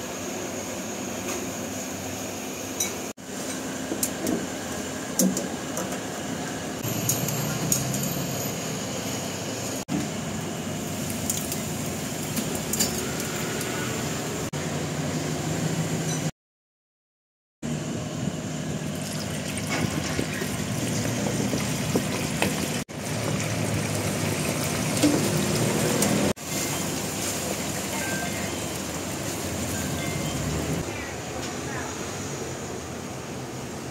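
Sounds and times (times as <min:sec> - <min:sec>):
oil bubbling and sizzling: 0:09.6 - 0:14.5, 0:18.8 - 0:30.9.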